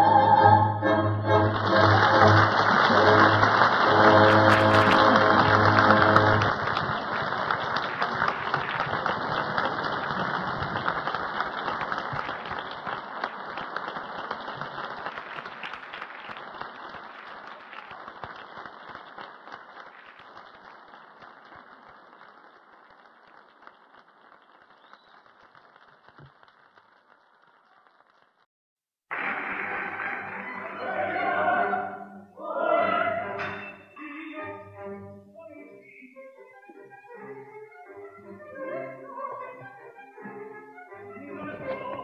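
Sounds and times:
audience applauding: 0:01.1 - 0:28.5, 0:29.1 - 0:31.8.

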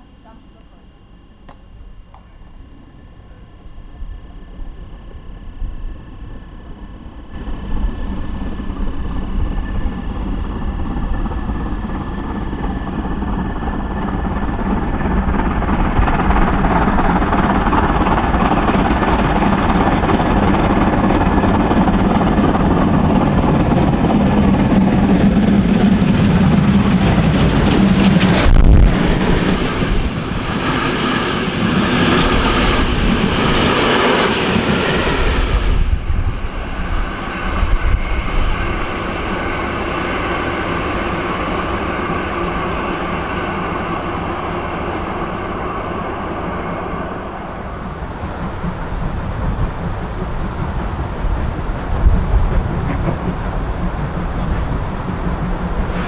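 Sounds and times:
steam locomotive passing: 0:02.1 - 0:56.0
train wheels clattering on rails: 0:37.8 - 0:56.0.

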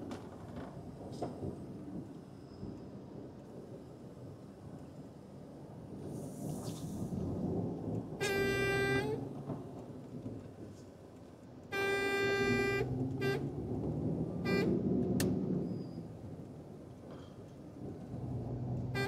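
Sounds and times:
truck engine rumble: 0:06.0 - 0:19.0
truck horn honking: 0:08.2 - 0:09.3, 0:11.7 - 0:13.7, 0:14.4 - 0:14.9.

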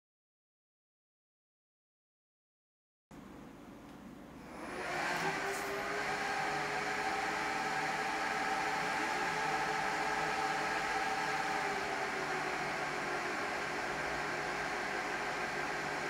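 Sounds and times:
server fans whirring: 0:03.2 - 0:16.0.

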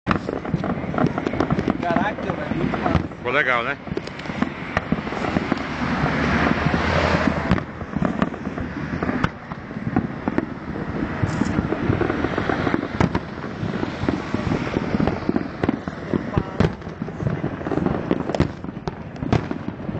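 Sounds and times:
fireworks bangs and crackles: 0:00.0 - 0:19.9
road traffic passing: 0:00.1 - 0:19.9.

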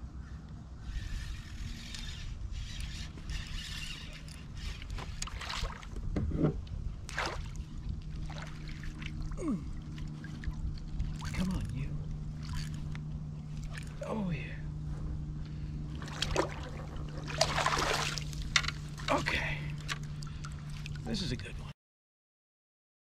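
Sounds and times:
steady low hum: 0:00.0 - 0:21.7
fishing reel cranking: 0:00.8 - 0:05.4
fish splashing: 0:16.0 - 0:19.1.

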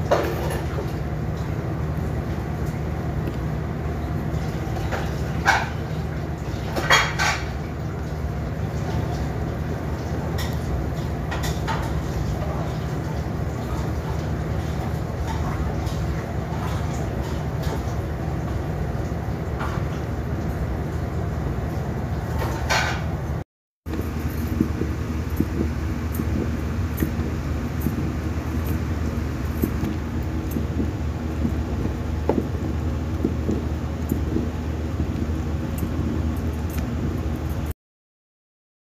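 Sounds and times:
steady low rumble: 0:23.9 - 0:37.7.

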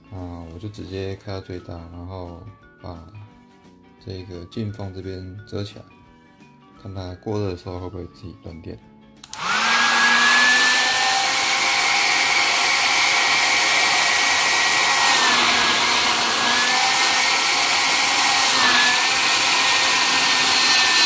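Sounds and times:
hair dryer running: 0:09.2 - 0:21.0.

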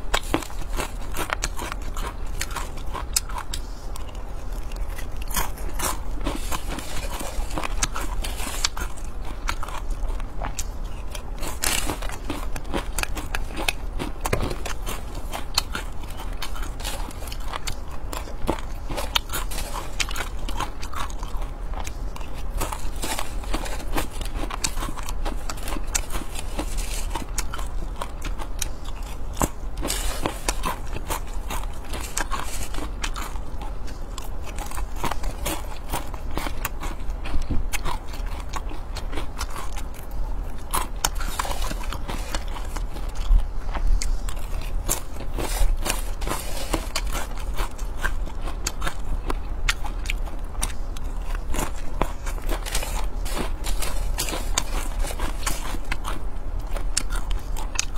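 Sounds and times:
crunching and chewing: 0:00.0 - 0:57.9.

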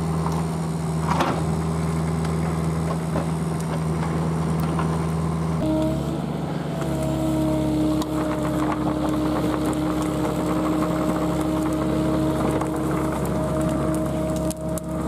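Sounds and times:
excavator diesel engine: 0:00.0 - 0:15.0
roots snapping and cracking: 0:07.9 - 0:15.0.

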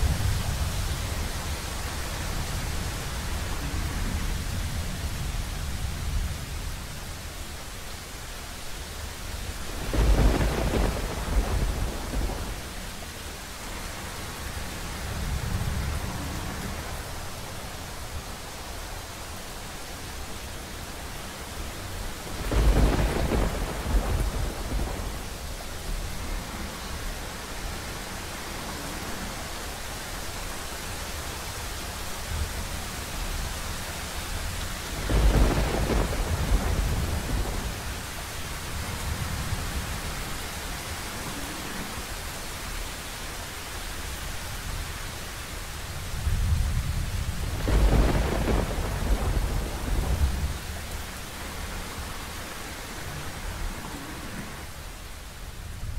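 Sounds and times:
steady rain: 0:00.0 - 0:55.9
thunder rumbling: 0:09.4 - 0:13.7, 0:21.8 - 0:27.7, 0:34.4 - 0:42.0, 0:46.1 - 0:54.8.

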